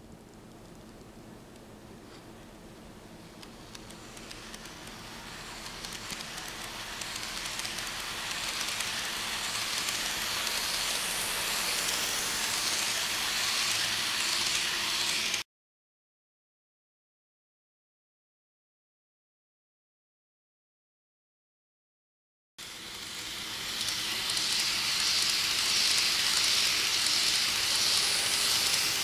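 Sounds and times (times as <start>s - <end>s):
model train hissing: 3.6s - 15.4s, 22.6s - 29.0s
wheels clicking: 23.6s - 29.0s.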